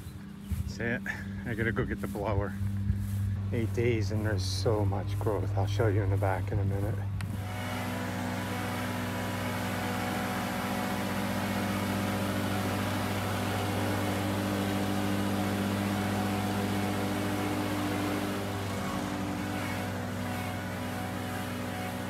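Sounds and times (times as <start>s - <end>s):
mower blades cutting grass: 0.0s - 22.0s
mower engine running: 0.0s - 22.0s.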